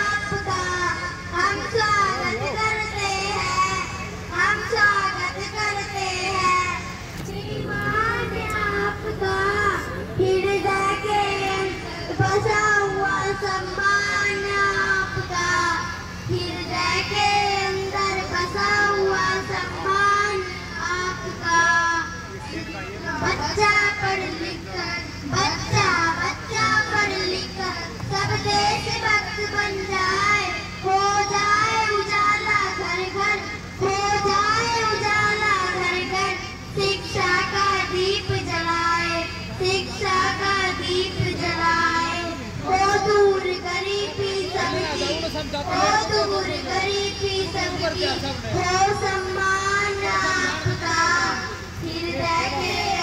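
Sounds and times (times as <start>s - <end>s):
sound system hum: 0.0s - 53.0s
girls singing together: 48.5s - 53.0s.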